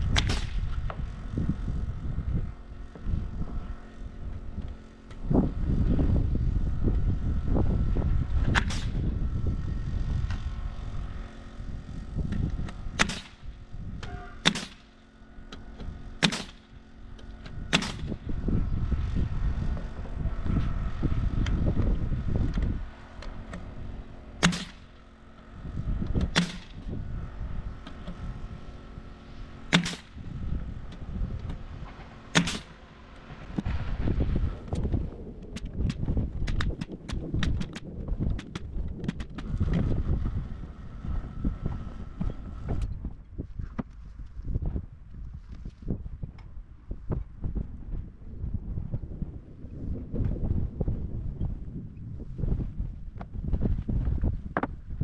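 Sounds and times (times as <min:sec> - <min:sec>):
wind rumble on microphone: 0:00.0 - 0:55.0
nail gun shots: 0:00.1 - 0:00.8, 0:08.4 - 0:09.0, 0:12.6 - 0:16.7, 0:17.4 - 0:18.2, 0:24.4 - 0:25.0, 0:26.2 - 0:26.9, 0:29.7 - 0:30.2, 0:31.5 - 0:32.8, 0:38.4 - 0:39.5.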